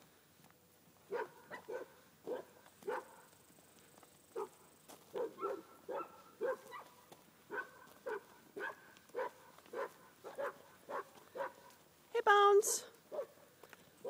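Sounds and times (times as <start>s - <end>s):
dog barking: 1.1s - 3.3s, 5.1s - 11.8s, 13.1s - 13.4s.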